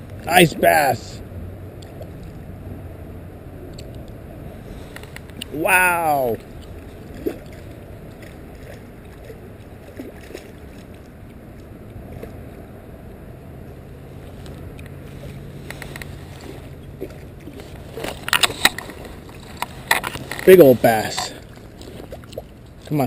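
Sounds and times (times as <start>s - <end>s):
low background hiss: 0.0s - 23.0s
fish splashing in water: 6.4s - 12.5s.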